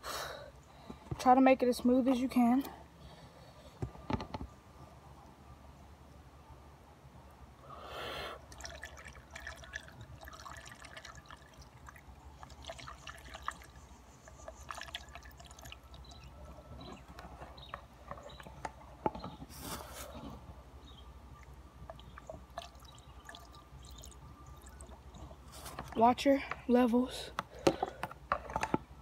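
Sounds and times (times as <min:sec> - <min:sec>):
liquid trickling into radiator: 0:08.5 - 0:16.3, 0:21.9 - 0:25.2
small drips: 0:08.5 - 0:16.3, 0:21.4 - 0:25.2.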